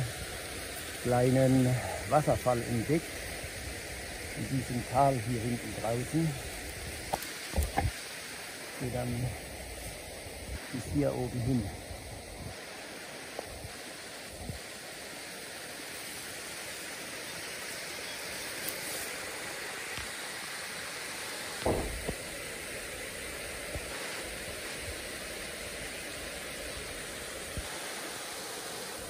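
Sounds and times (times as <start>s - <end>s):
waterfall and stream rushing: 0.0s - 29.0s
low thump: 21.6s - 22.2s.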